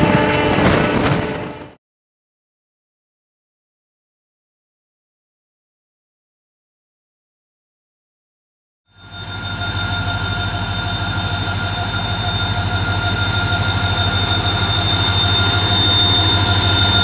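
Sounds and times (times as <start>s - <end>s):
diesel locomotive engine throbbing: 0.0s - 1.8s, 8.9s - 17.0s
high whine: 8.9s - 17.0s.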